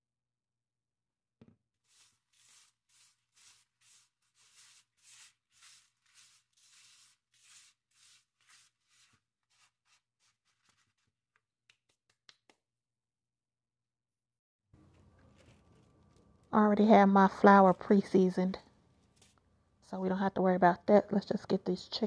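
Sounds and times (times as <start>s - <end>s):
breadcrumbs rustling under hand: 1.9s - 11.2s, 14.8s - 16.2s.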